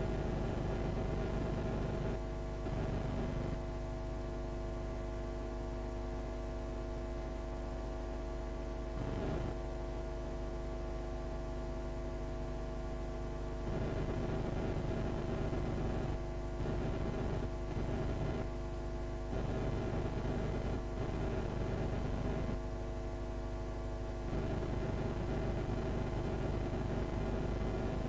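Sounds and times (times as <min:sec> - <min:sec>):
electrical mains hum: 0:00.0 - 0:28.0.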